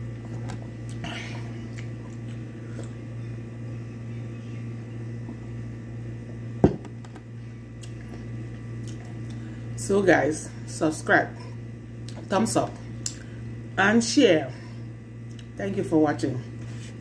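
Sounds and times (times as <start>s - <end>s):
steady low hum: 0.0s - 17.0s
glass tumbler set down: 6.6s - 6.9s.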